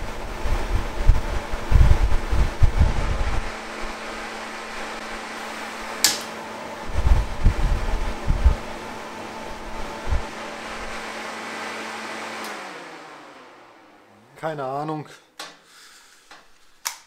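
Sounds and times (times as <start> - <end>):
gas flame rumbling: 0.0 - 11.4
electric fan humming: 0.0 - 17.0
sharp click: 6.0 - 6.3.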